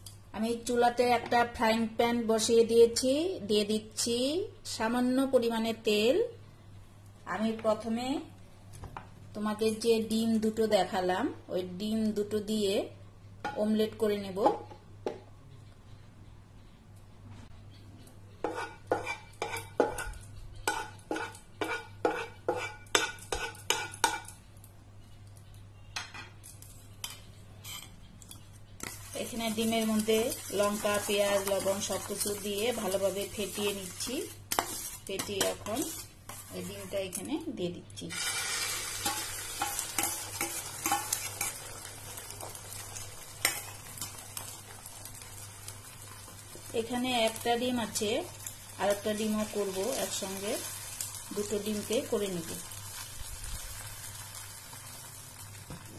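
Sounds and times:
egg sizzling in hot oil: 0:28.7 - 0:37.2, 0:38.1 - 0:55.8.

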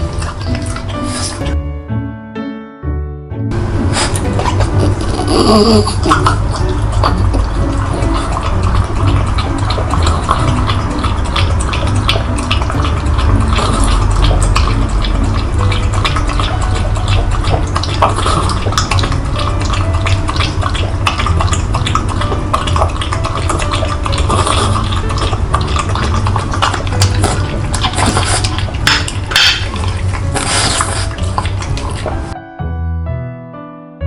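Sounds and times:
dog lapping liquid: 0:00.0 - 0:01.6, 0:03.8 - 0:32.4
low rumble: 0:03.4 - 0:23.4.

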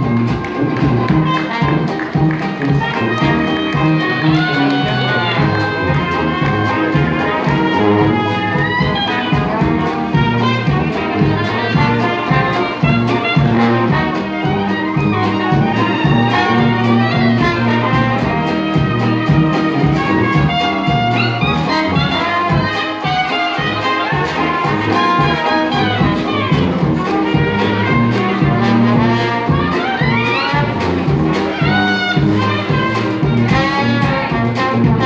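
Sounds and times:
banjo and guitar strumming: 0:00.0 - 0:35.0
clarinet: 0:00.0 - 0:35.0
jazz band playing: 0:00.0 - 0:35.0
trombone: 0:00.0 - 0:35.0
trumpet: 0:00.0 - 0:35.0
tuba bass line: 0:00.0 - 0:35.0.

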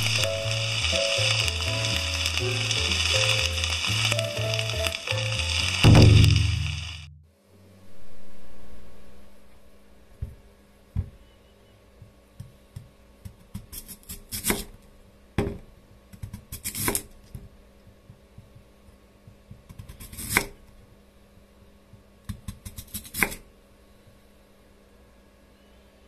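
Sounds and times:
knife slicing radish on board: 0:13.3 - 0:14.8, 0:16.1 - 0:17.1, 0:19.7 - 0:20.6, 0:22.3 - 0:23.4.

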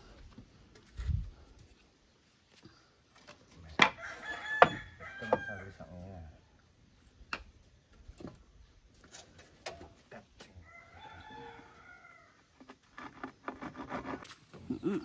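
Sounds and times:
rooster crowing: 0:03.9 - 0:05.8, 0:10.6 - 0:12.4.

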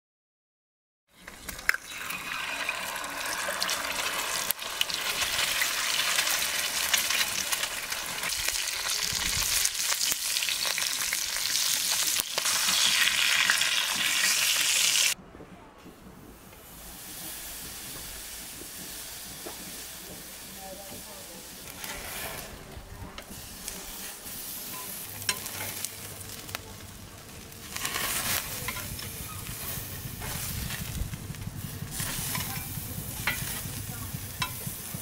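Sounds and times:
charcoal grill hiss: 0:01.2 - 0:15.2, 0:16.4 - 0:35.0
egg sizzling in a pan: 0:01.2 - 0:15.2, 0:23.2 - 0:35.0.

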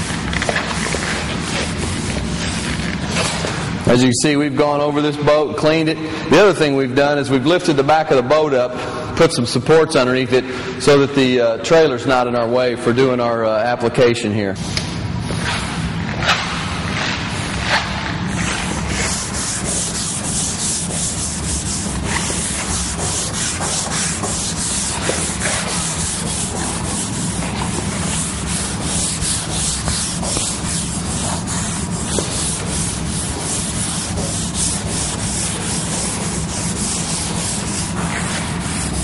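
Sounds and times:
scuff pad scrubbing painted hull: 0:00.0 - 0:03.6, 0:15.2 - 0:39.0.

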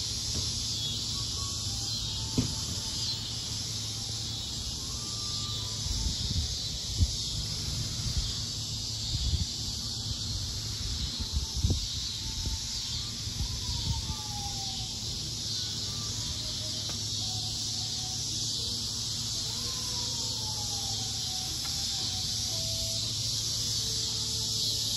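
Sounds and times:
high-pitched outdoor hiss: 0:00.0 - 0:24.9
wind rumble on microphone: 0:05.8 - 0:14.7.

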